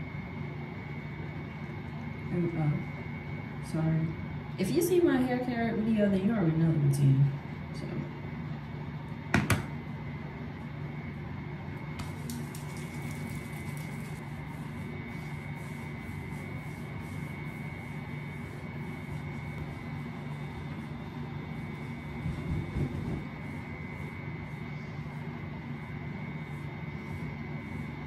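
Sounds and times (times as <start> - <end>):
mechanical drone with low hum: 0.0 - 28.0
faint high whine: 9.8 - 28.0.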